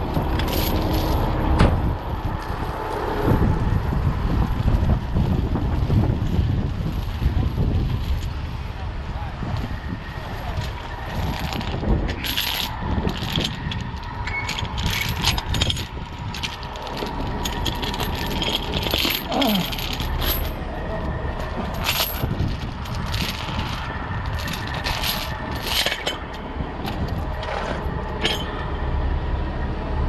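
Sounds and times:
steady low rumble: 0:00.0 - 0:30.0
metal chains clinking: 0:11.1 - 0:28.7.

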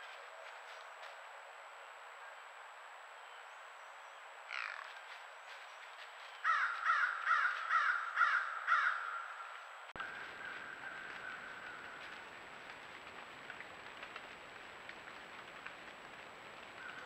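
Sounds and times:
crow cawing: 0:04.5 - 0:04.9, 0:06.4 - 0:12.1.

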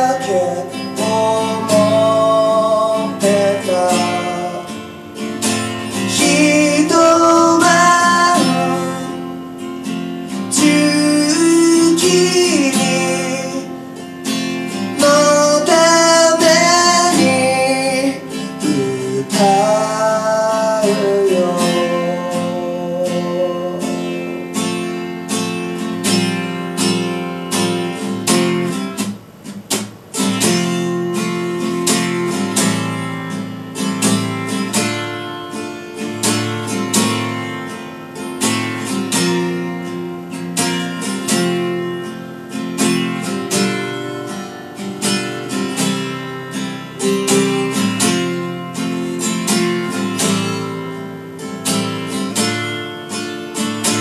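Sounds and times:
man singing: 0:00.0 - 0:04.9, 0:05.6 - 0:09.7, 0:10.3 - 0:24.6
acoustic guitar strumming: 0:00.0 - 0:54.0.

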